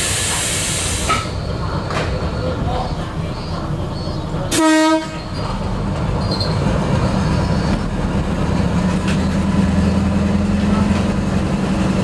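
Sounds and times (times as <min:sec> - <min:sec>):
railcar engine and wheels rumbling: 0:00.0 - 0:12.0
railcar horn blast: 0:04.5 - 0:05.4.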